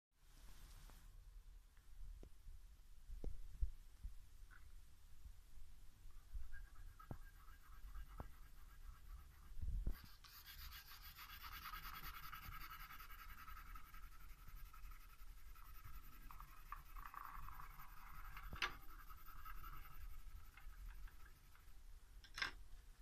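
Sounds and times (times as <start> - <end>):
pencil scratching on paper: 6.4 - 21.7.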